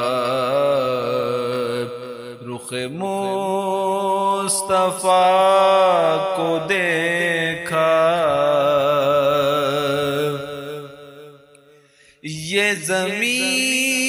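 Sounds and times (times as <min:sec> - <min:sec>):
person singing devotional song: 0:00.0 - 0:14.0
singer breathing: 0:11.7 - 0:12.3.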